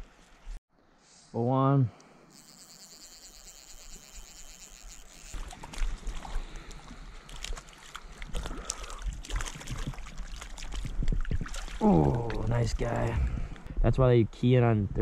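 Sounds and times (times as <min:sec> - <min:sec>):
fish splashing in water: 0:05.2 - 0:12.0.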